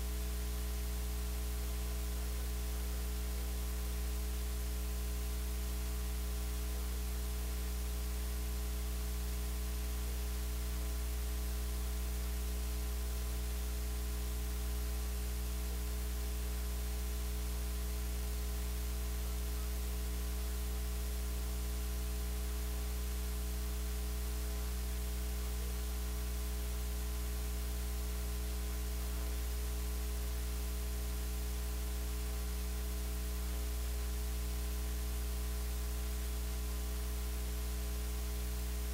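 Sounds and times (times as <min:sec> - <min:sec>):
electrical mains hum: 0:00.0 - 0:38.9
static hiss: 0:09.0 - 0:38.9.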